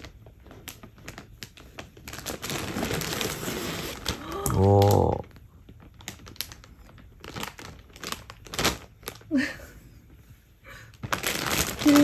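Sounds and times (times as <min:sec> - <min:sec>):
plastic bag crinkling: 0:00.0 - 0:09.6, 0:10.9 - 0:12.0.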